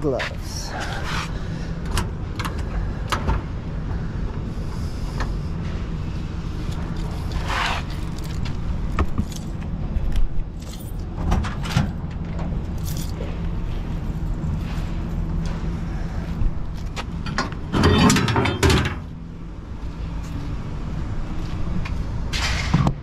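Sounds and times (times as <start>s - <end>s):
vehicle engine idling: 11.9s - 17.7s.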